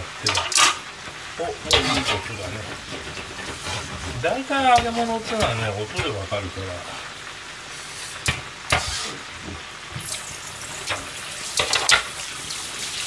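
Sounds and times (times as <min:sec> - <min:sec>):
oil deep-frying sizzle: 0:00.0 - 0:13.0
metal tray clattering in sink: 0:01.7 - 0:06.1
tap water running into sink: 0:08.2 - 0:13.0.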